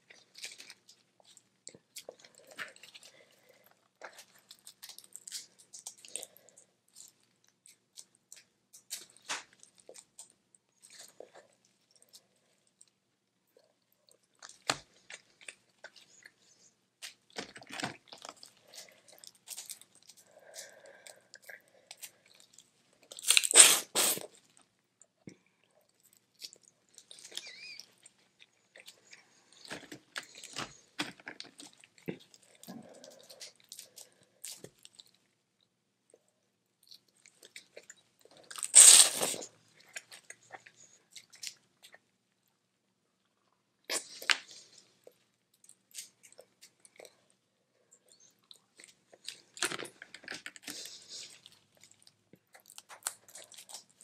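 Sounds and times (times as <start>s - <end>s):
chewing: 0.0s - 23.6s, 25.3s - 35.2s, 43.3s - 54.0s
shell crunching and cracking: 23.0s - 23.6s, 48.8s - 54.0s.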